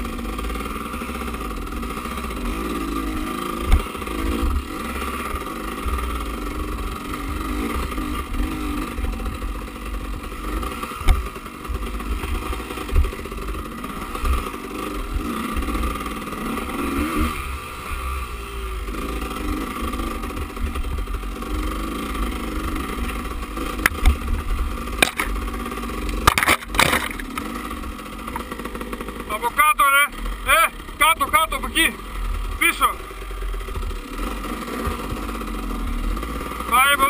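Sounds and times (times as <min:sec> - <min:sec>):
dirt bike engine revving: 0:00.0 - 0:37.0
sharp knocks from bumps: 0:25.0 - 0:25.4, 0:26.0 - 0:27.5.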